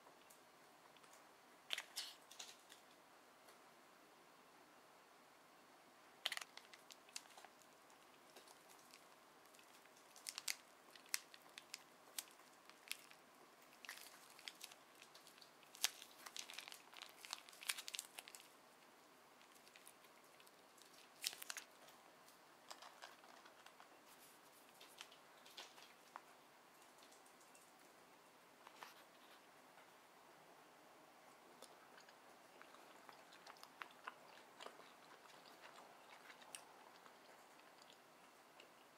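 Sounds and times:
packet crinkling: 0:01.0 - 0:02.8, 0:06.2 - 0:18.6, 0:19.4 - 0:22.0, 0:22.6 - 0:26.2.

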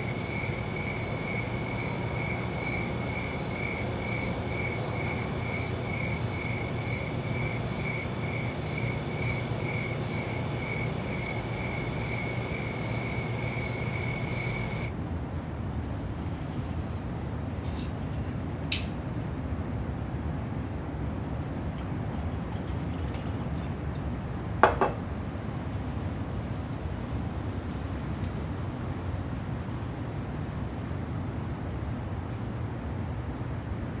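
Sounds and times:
cricket chirping: 0:00.0 - 0:14.9
steady low hum: 0:00.0 - 0:15.0.

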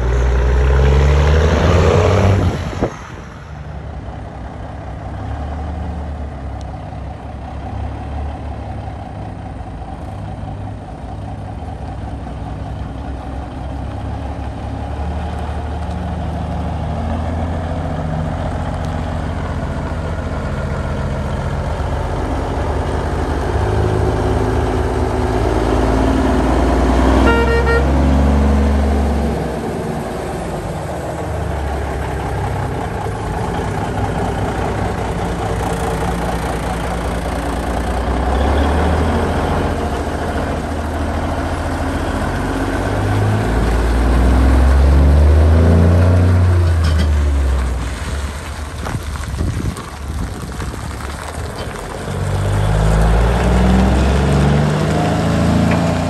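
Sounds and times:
heavy truck engines running: 0:00.0 - 0:56.0
truck horn blast: 0:27.1 - 0:28.3.

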